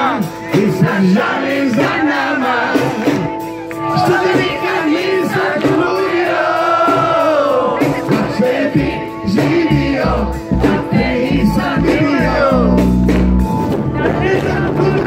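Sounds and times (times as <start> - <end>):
man singing into microphone: 0.0 - 3.3, 13.9 - 15.0
amplified band: 0.0 - 15.0
low bass notes: 5.8 - 15.0.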